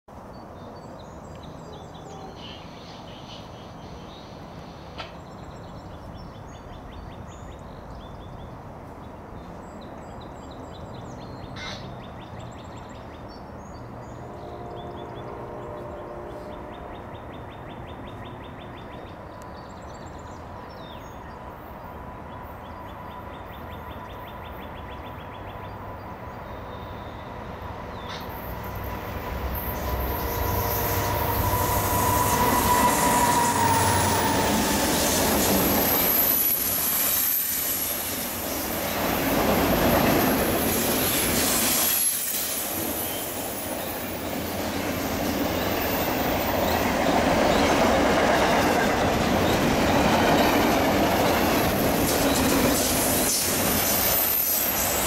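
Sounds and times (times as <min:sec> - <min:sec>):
diesel freight train rumble: 0:13.4 - 0:55.0.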